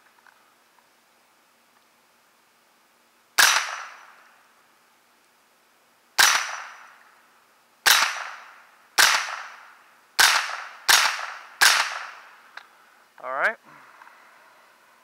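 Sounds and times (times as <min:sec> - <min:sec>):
rifle shots: 0:03.4 - 0:04.2, 0:06.2 - 0:07.0, 0:07.8 - 0:12.4.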